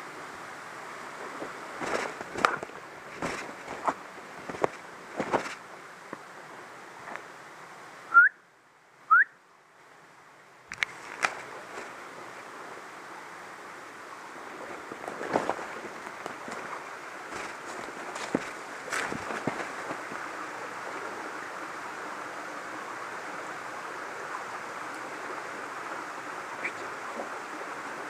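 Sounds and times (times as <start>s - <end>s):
footsteps in dry undergrowth: 1.8s - 5.6s, 15.0s - 20.2s
person whistling: 8.1s - 8.4s, 9.1s - 9.3s.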